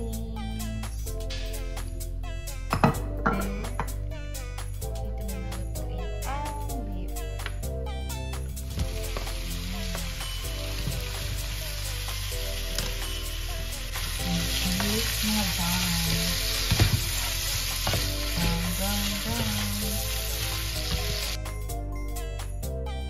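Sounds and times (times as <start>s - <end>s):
light background music: 0.0s - 23.0s
beef sizzling in frying pan: 8.6s - 21.4s.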